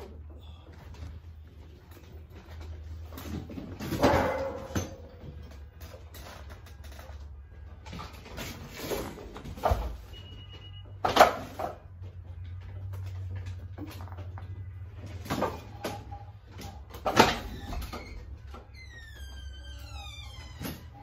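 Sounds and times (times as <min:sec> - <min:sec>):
door being opened: 0:15.5 - 0:21.0.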